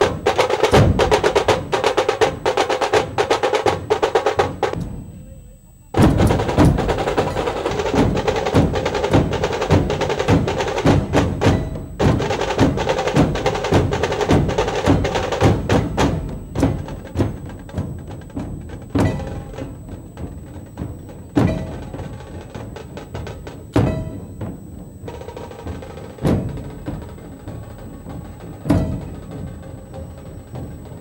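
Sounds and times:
drums beaten in fast rhythm: 0:00.0 - 0:31.0.

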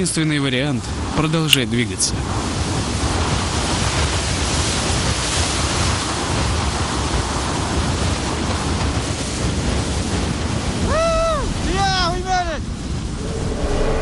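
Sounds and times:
blizzard wind hissing: 0:12.9 - 0:14.0.

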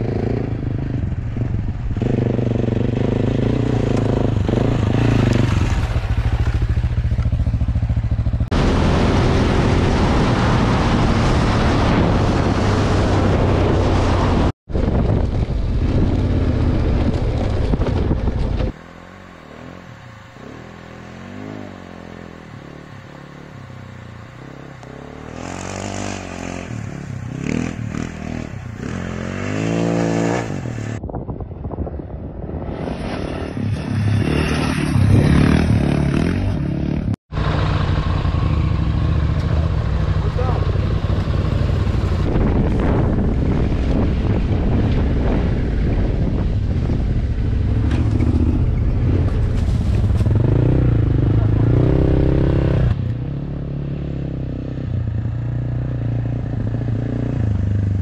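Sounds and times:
motorcycle engine revving: 0:00.0 - 0:31.0, 0:32.5 - 0:58.0
wind noise on microphone: 0:08.5 - 0:18.8, 0:28.6 - 0:36.3, 0:41.6 - 0:53.0.

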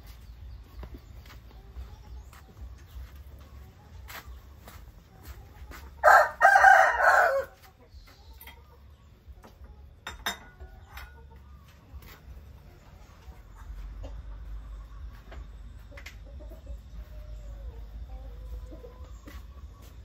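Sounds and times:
rooster crowing: 0:06.0 - 0:07.6.

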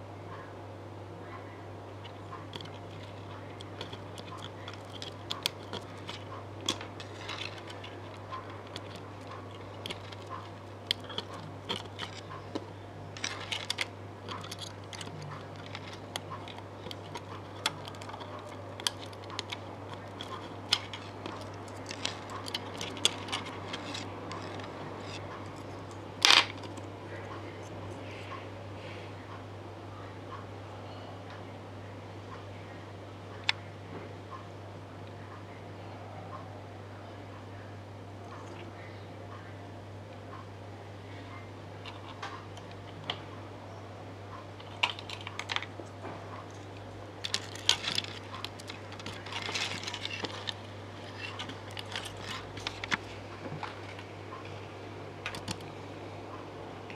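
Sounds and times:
low electrical hum: 0:00.0 - 0:56.9
clicks of electronic parts handled: 0:02.5 - 0:25.2, 0:47.2 - 0:54.0.

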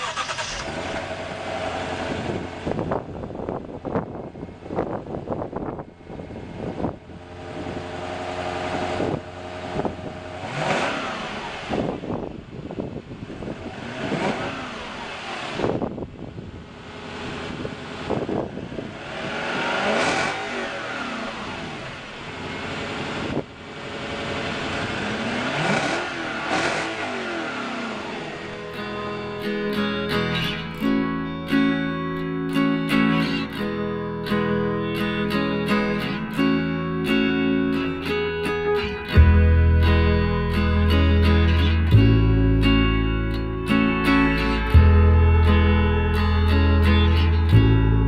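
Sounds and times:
car engine revving: 0:00.0 - 0:48.0
acoustic guitar music: 0:28.3 - 0:48.0.

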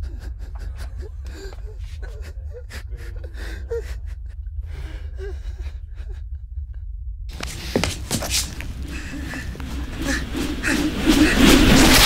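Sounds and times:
steady low rumble: 0:00.0 - 0:12.0
person gasping for breath: 0:08.8 - 0:11.5.

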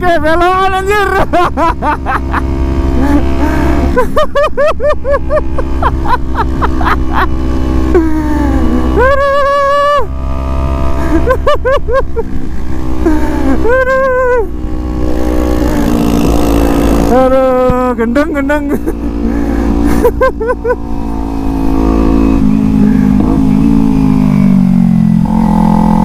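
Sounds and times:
man's loud wordless voice: 0:00.0 - 0:01.5, 0:17.1 - 0:18.9
motorcycle running at road speed: 0:00.0 - 0:26.0.

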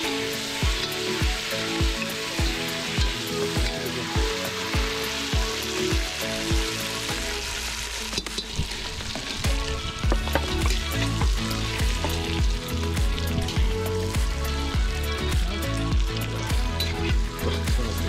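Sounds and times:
music with steady beat: 0:00.0 - 0:07.4, 0:09.4 - 0:18.0
utensil turning food: 0:00.0 - 0:13.6
chicken sizzling in oil: 0:00.0 - 0:18.0.

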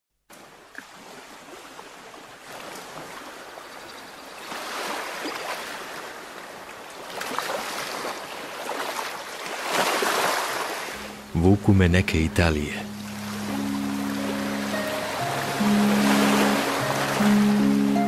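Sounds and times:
sea waves washing onto shore: 0:04.4 - 0:18.0.

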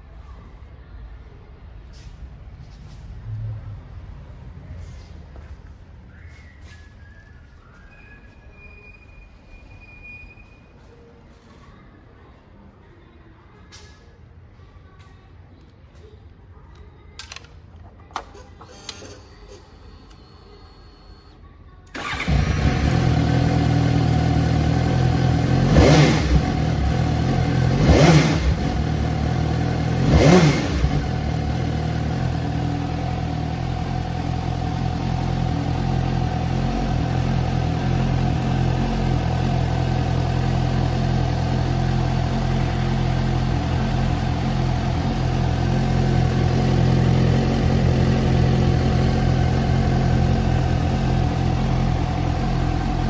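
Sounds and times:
motorcycle engine revving and idling: 0:21.9 - 0:53.0.

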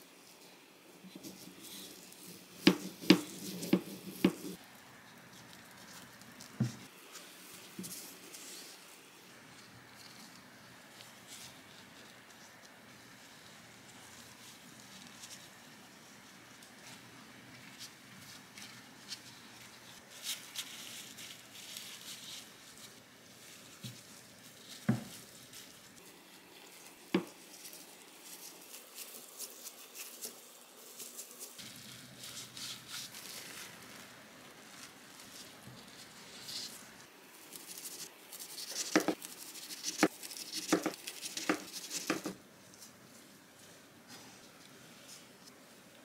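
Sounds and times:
plastic wrap rustling: 0:17.7 - 0:45.6.

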